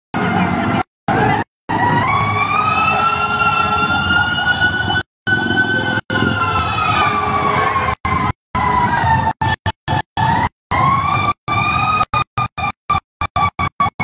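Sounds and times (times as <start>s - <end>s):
street traffic: 0.2s - 12.1s
fire truck siren wailing: 0.2s - 14.0s.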